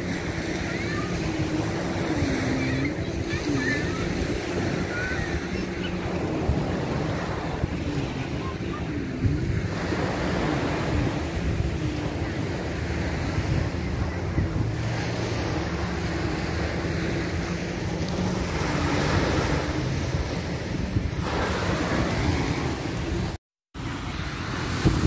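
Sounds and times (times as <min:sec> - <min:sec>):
surf washing: 0:00.0 - 0:25.0
wind buffeting microphone: 0:00.0 - 0:25.0.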